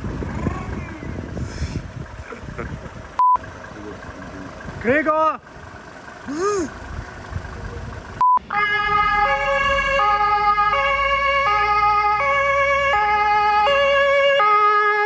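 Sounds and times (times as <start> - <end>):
short steady beep: 3.2 - 3.4, 8.2 - 8.4
two-tone emergency siren: 8.4 - 15.0.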